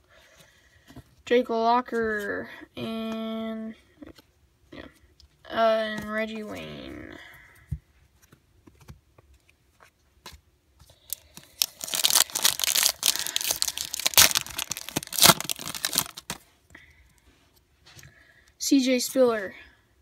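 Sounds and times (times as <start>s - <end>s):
foil wrapper crackling and tearing: 11.1s - 16.4s
sharp rips: 11.6s - 16.4s.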